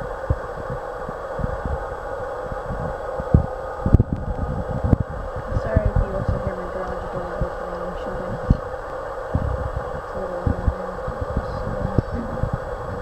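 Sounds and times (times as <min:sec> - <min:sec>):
low thumps: 0:00.0 - 0:13.0
steady background hum: 0:00.0 - 0:13.0.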